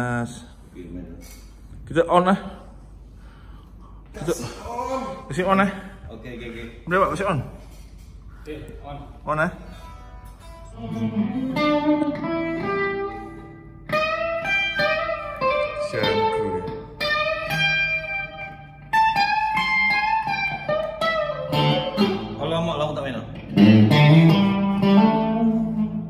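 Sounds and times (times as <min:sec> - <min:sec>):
electric guitar lead phrases: 0:09.7 - 0:26.0.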